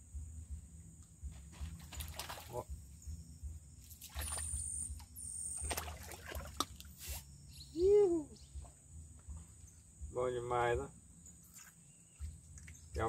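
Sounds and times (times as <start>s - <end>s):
fish splashing at water surface: 1.8s - 2.6s, 3.9s - 4.8s, 5.6s - 7.2s.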